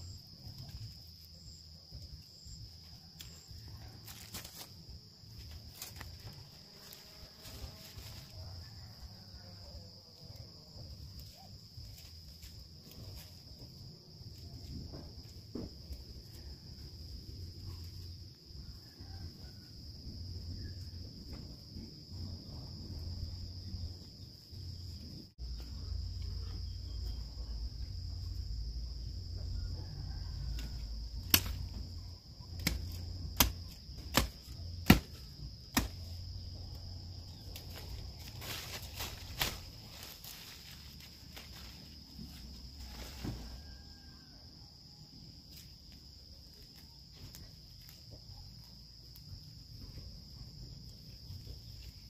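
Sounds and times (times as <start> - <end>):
low outdoor rumble: 0.0 - 43.3
insects buzzing: 0.0 - 52.0
plants snapping: 30.6 - 31.8, 32.5 - 36.1, 37.6 - 40.6.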